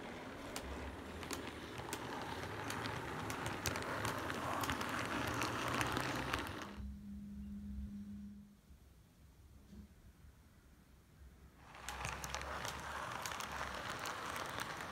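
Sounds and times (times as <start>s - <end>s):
model train motor and wheel rush: 0.0s - 6.8s, 11.6s - 14.9s
wheels clicking over rail joints: 0.0s - 6.8s, 11.7s - 14.9s.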